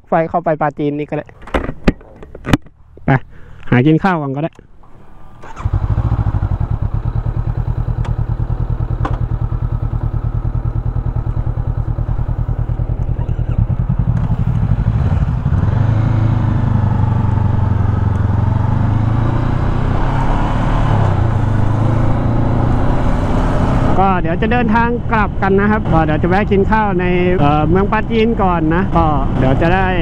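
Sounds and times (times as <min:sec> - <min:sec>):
motorcycle engine idling: 0:04.8 - 0:15.6.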